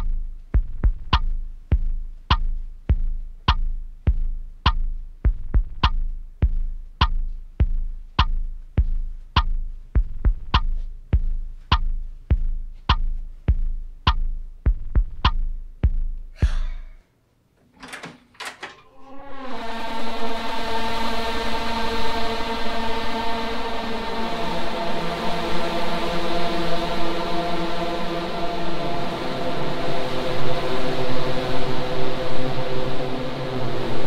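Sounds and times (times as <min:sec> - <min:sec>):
heartbeat-like thuds in film score: 0:00.0 - 0:16.9
door lever handle clicks: 0:17.6 - 0:18.9
steady droning chord: 0:18.9 - 0:34.0.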